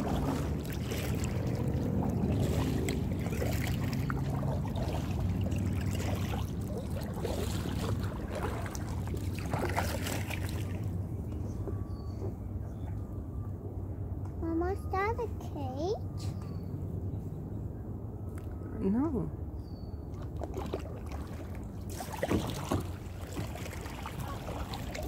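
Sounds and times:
paddle strokes splashing water: 0:00.0 - 0:11.0, 0:20.2 - 0:25.0.

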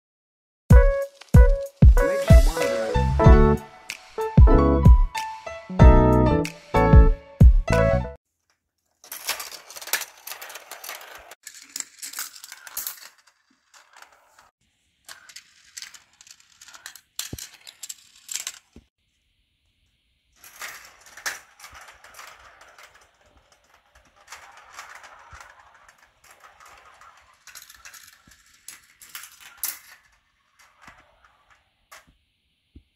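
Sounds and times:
intro music: 0:00.7 - 0:08.1
metal marbles rolling on track: 0:09.0 - 0:14.5, 0:15.1 - 0:18.9, 0:20.4 - 0:32.2.

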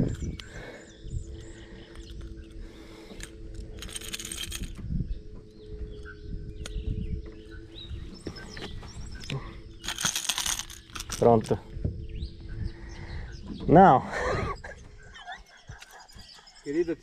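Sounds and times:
steady low hum: 0:00.0 - 0:17.0
metal hooks clinking and rattling: 0:01.4 - 0:04.8, 0:09.2 - 0:11.6.

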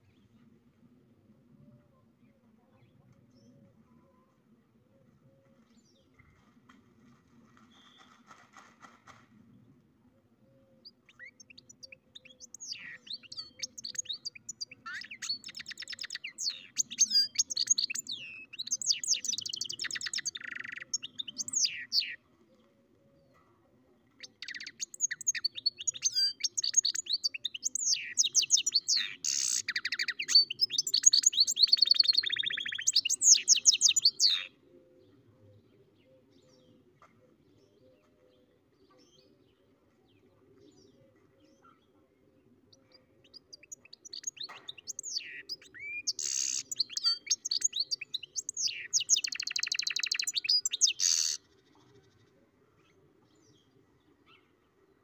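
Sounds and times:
songbird twittering and trilling: 0:10.8 - 0:22.2, 0:24.1 - 0:34.6, 0:42.7 - 0:54.6.

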